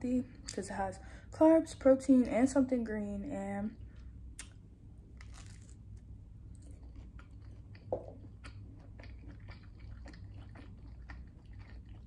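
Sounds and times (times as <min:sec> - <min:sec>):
biting into crunchy toast: 0:05.2 - 0:05.8
close chewing: 0:06.5 - 0:12.0.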